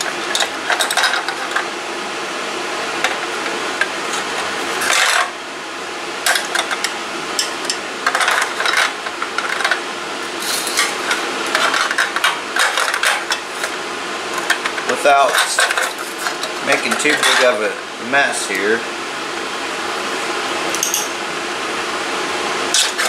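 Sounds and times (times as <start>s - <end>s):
metal scraping and clinking: 0.0s - 1.6s, 4.1s - 5.4s, 6.3s - 13.8s, 14.4s - 17.6s
exhaust fan noise: 0.0s - 23.0s.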